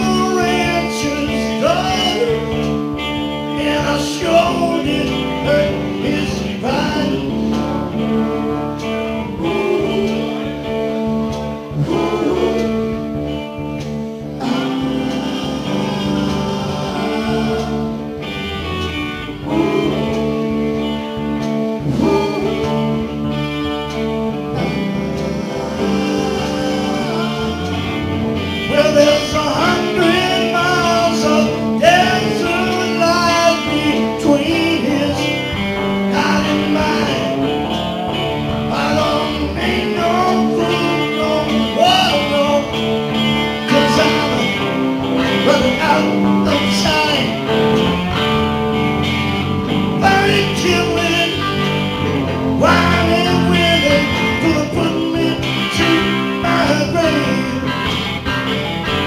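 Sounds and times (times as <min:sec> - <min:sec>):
bass guitar: 0:00.0 - 0:59.0
electric guitar: 0:00.0 - 0:59.0
amplified harmonica wailing: 0:11.8 - 0:33.7.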